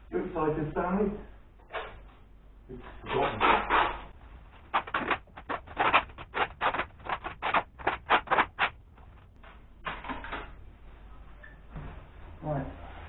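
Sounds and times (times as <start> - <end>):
plastic bag rustling: 4.4 - 9.4.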